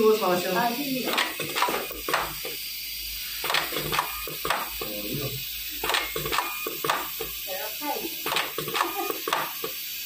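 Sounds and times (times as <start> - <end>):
steady pneumatic hiss: 0.0 - 10.0
sharp mechanical clicks: 1.0 - 2.7, 3.4 - 4.8, 5.8 - 7.4, 8.2 - 9.8.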